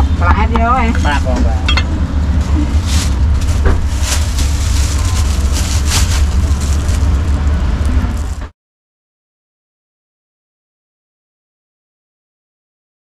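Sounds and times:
low rumble of street traffic: 0.0 - 8.6
plastic bag crinkling: 2.8 - 8.5.

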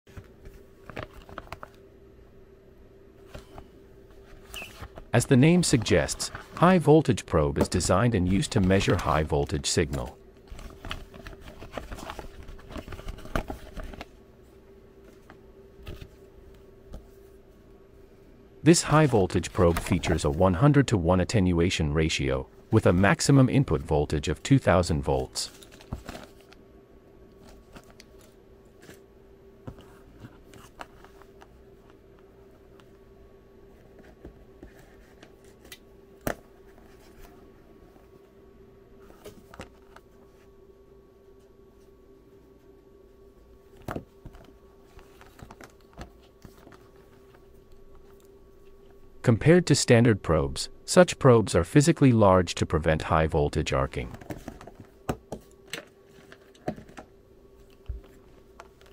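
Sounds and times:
faint steady hum: 0.1 - 58.9.

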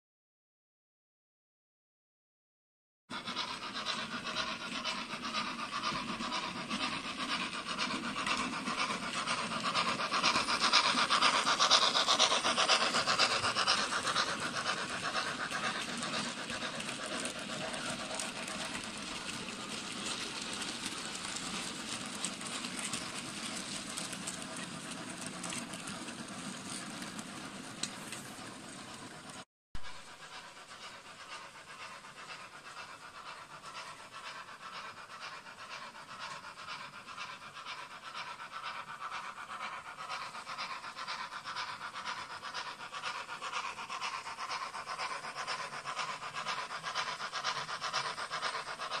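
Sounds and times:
model steam locomotive chuffing: 3.1 - 49.0
model wheels rumbling on track: 3.2 - 29.4, 30.2 - 49.0.

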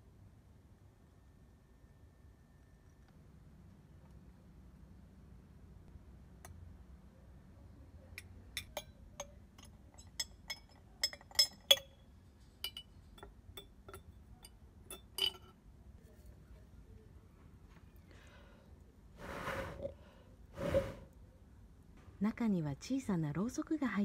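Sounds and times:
glass jars clinking: 8.6 - 12.0, 12.6 - 15.6.

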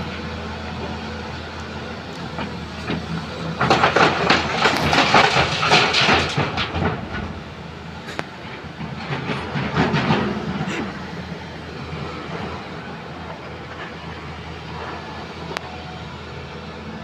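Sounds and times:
diesel engines running: 0.0 - 17.0
rocks clattering into truck body: 3.6 - 7.4.

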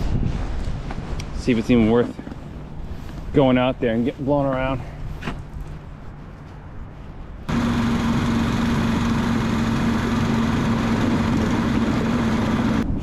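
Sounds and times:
tracked sled engine hum: 5.2 - 13.0.

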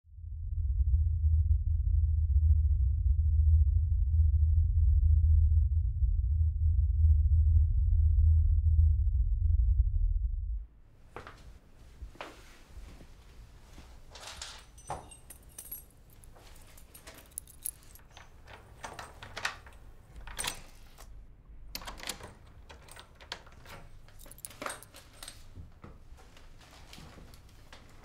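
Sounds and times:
paper rustling: 12.9 - 21.0, 23.4 - 28.0
metallic jingles and clicks: 14.1 - 21.2, 21.8 - 25.6
door handle clicking: 16.9 - 25.4.

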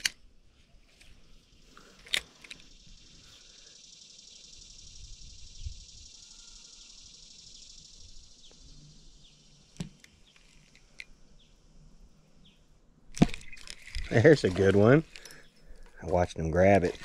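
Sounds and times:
sharp clicks: 0.0 - 0.2, 1.8 - 2.7
steady high-pitched hiss: 0.0 - 17.0
faint bird chirps: 2.6 - 11.7.

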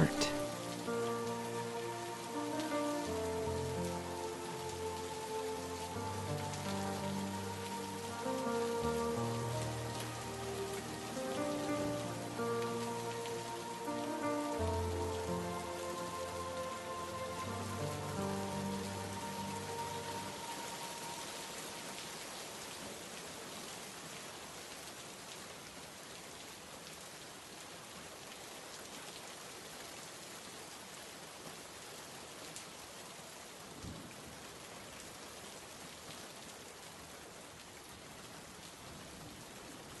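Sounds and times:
music note: 0.0 - 0.6
steady rain: 0.0 - 40.0.

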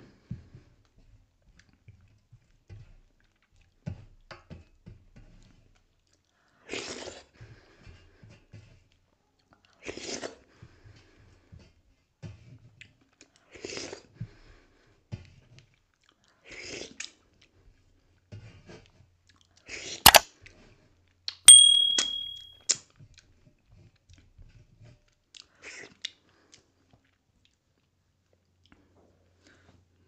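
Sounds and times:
loud click: 21.5 - 22.5.

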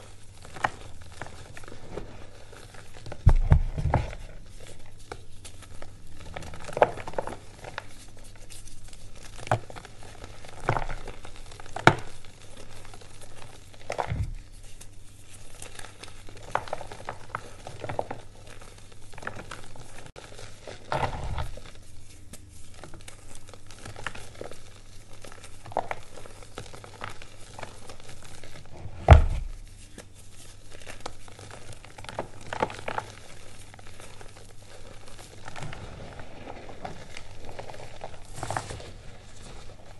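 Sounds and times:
chalk crumbling in hands: 0.0 - 28.8, 29.4 - 39.9
deeper thump: 28.9 - 29.5.

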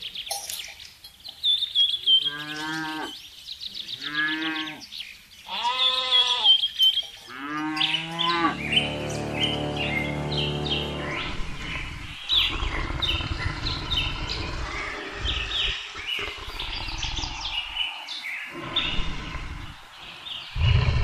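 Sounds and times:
cow mooing: 2.2 - 3.2, 7.3 - 13.1
steady low hum: 8.3 - 18.0.

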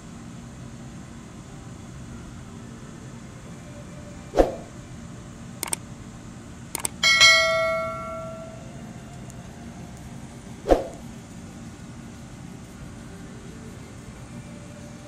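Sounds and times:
air conditioner unit humming: 0.0 - 15.0
mouse clicks: 6.8 - 7.0
bell ding: 7.0 - 8.7.

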